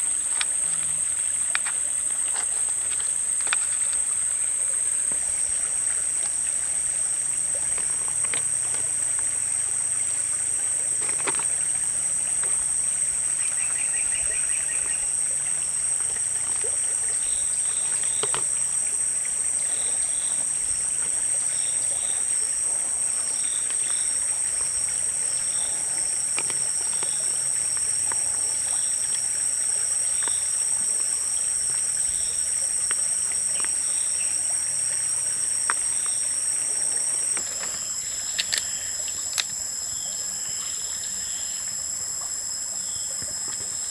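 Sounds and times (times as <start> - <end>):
high-pitched outdoor drone: 0.0 - 43.9
small chirps: 0.0 - 43.9
stream-like hiss: 0.0 - 43.9
shells clicking on basket: 37.4 - 39.6.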